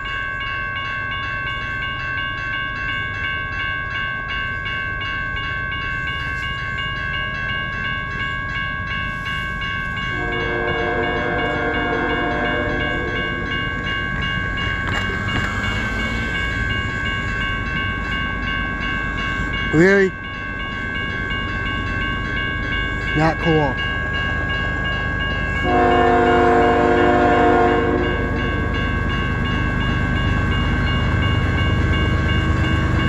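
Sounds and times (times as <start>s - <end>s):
crossing bell ringing: 0.0s - 33.0s
locomotive horn blast: 10.1s - 13.4s, 25.6s - 28.4s
car passing: 11.9s - 17.9s.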